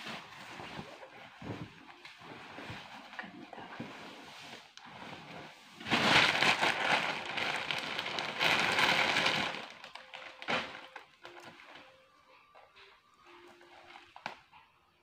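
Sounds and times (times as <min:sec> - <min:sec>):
plastic mailer bag crinkling: 0:05.8 - 0:12.0.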